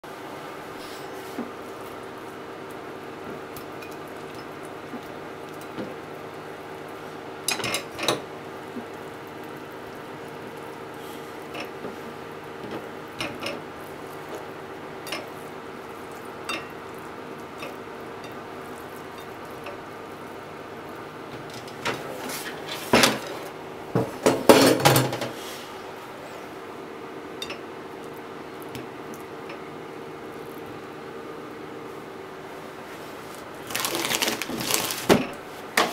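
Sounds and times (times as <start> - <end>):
kitchenware clatter: 7.5 - 8.2, 21.4 - 25.4.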